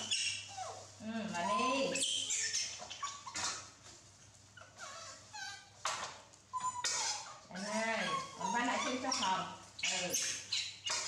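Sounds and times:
baby monkeys squeaking: 0.0s - 3.8s, 4.6s - 11.0s.

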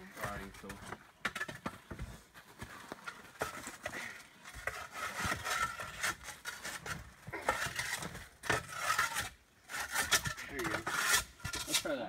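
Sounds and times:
shovel scraping on gravel: 3.1s - 12.0s.

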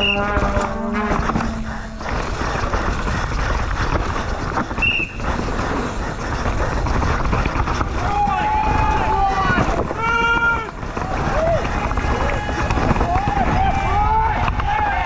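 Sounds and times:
wind rushing over microphone: 0.0s - 15.0s
bike clattering over rocks: 0.2s - 15.0s.

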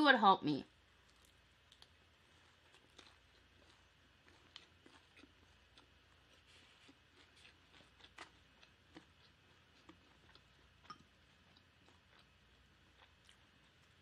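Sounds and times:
chewing and mouth sounds: 0.9s - 14.0s.

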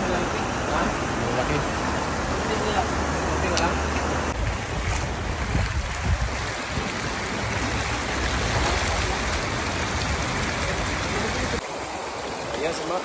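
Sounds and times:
water rushing over weir: 0.0s - 13.0s.

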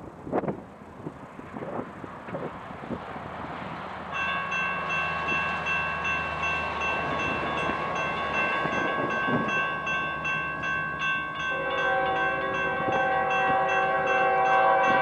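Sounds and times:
freight train rumble: 0.0s - 15.0s
bell ringing steadily: 4.2s - 15.0s.

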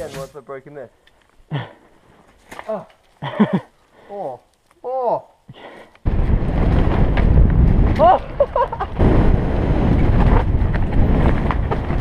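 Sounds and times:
tyres on rough dirt trail: 0.0s - 12.0s
wind buffeting microphone: 6.1s - 12.0s
mountain bike rattling: 9.7s - 12.0s.

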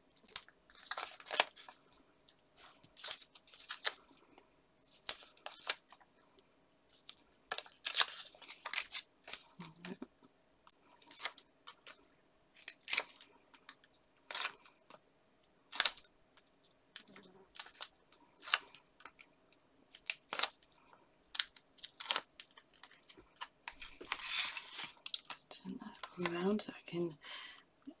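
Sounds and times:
paper and foam pads handled: 0.3s - 4.2s, 4.8s - 6.1s, 6.9s - 15.0s, 21.4s - 26.6s.

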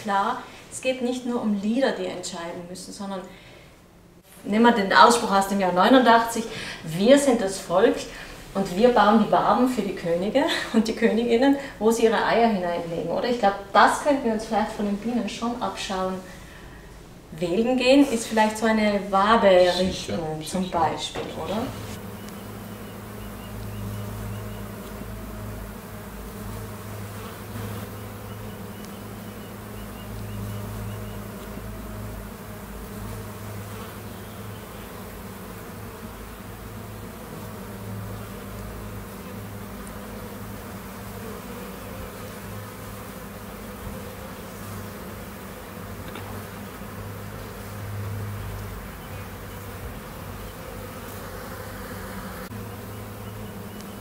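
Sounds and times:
honeybees droning: 0.0s - 54.0s.

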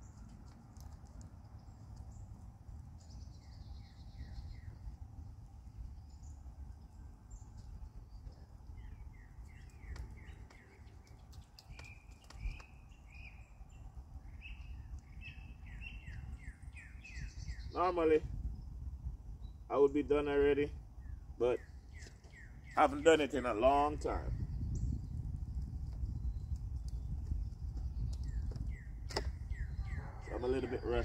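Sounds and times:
songbirds chirping: 0.0s - 31.0s
steady low rumble: 0.0s - 31.0s.

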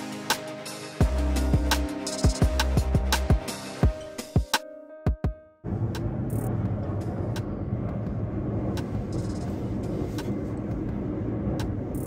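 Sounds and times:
cable car cabin rumble: 5.7s - 12.0s.

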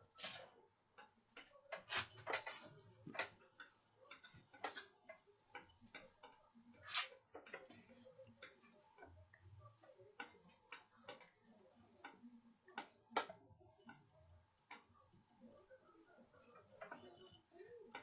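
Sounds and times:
computer clicks and taps: 0.0s - 15.2s.

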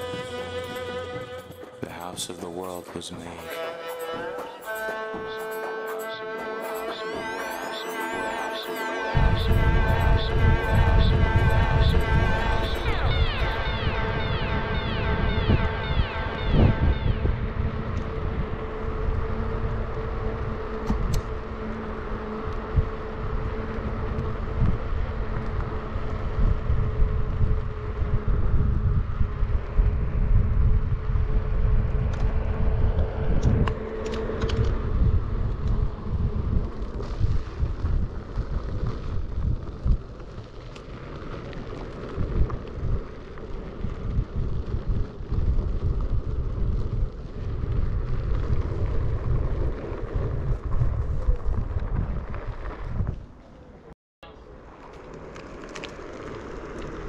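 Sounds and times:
steady electric whine: 3.6s - 40.1s
wind buffeting microphone: 9.2s - 53.8s.

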